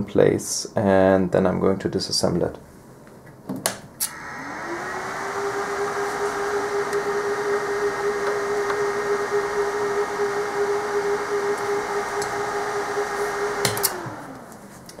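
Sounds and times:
cooling fans humming: 0:04.0 - 0:15.0.

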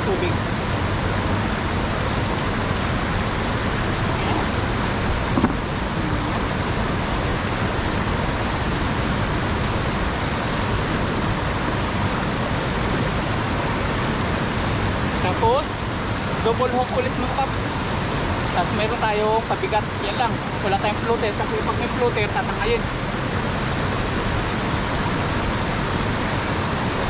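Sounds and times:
flowing water rushing: 0:00.0 - 0:27.0.

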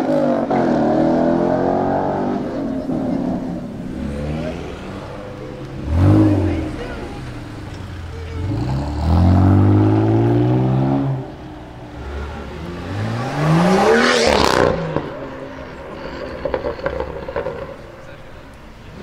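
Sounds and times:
car engine revving hard: 0:00.0 - 0:11.4, 0:12.0 - 0:15.3
sports car revving past: 0:00.0 - 0:17.8.

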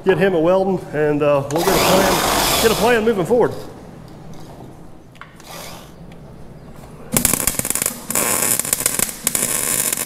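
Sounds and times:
welder arc crackling: 0:07.2 - 0:10.0.

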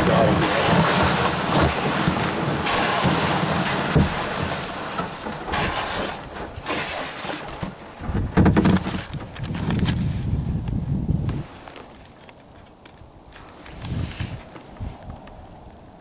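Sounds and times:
paddle strokes through slush: 0:00.0 - 0:09.1, 0:13.4 - 0:14.5
wind rumble on microphone: 0:07.9 - 0:11.7, 0:12.9 - 0:16.0.

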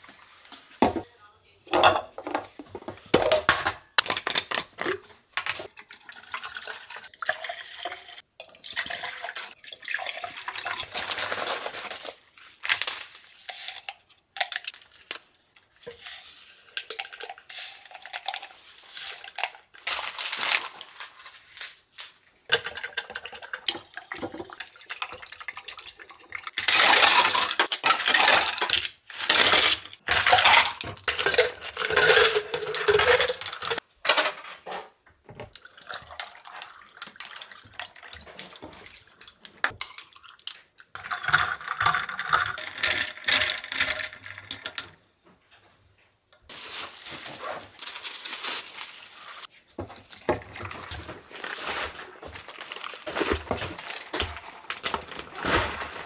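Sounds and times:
cups clinking and knocking: 0:01.7 - 0:05.6, 0:30.1 - 0:33.8
coffee being stirred: 0:15.8 - 0:19.6
ice cubes clattering into glasses: 0:26.5 - 0:34.4, 0:39.7 - 0:44.9.

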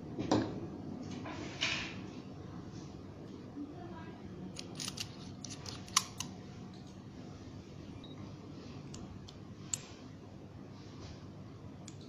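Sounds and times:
steel and glass parts clicking: 0:04.6 - 0:06.2.

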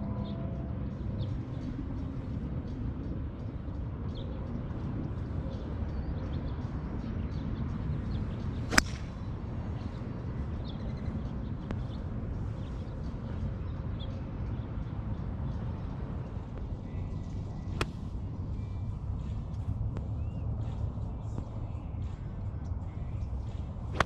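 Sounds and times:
golf club striking ball: 0:08.7 - 0:09.2.

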